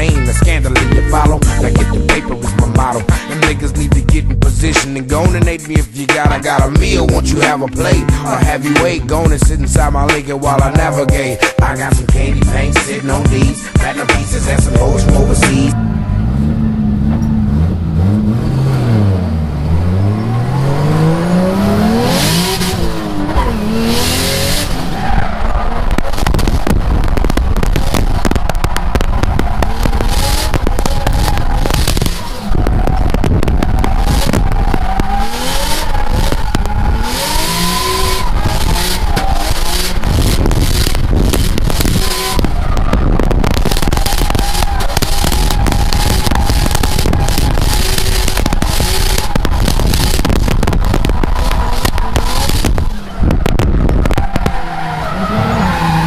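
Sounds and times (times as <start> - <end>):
car engine revving hard: 13.9 - 56.0
tyres squealing: 27.8 - 56.0.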